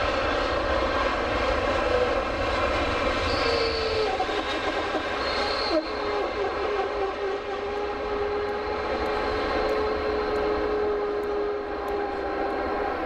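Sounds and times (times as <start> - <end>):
rumble of rolling jet: 0.0 - 13.0
wheel brakes squealing: 3.2 - 4.1.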